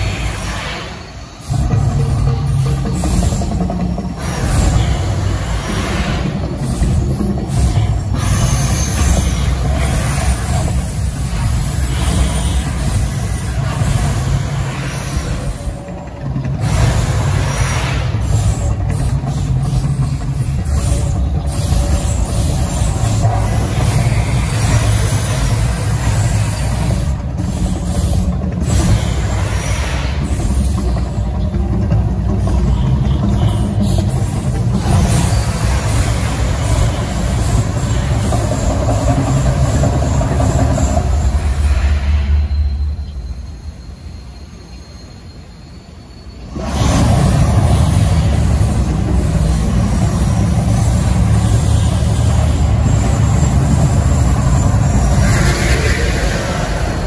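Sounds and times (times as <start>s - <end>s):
music: 1.5s - 8.2s, 30.7s - 41.1s.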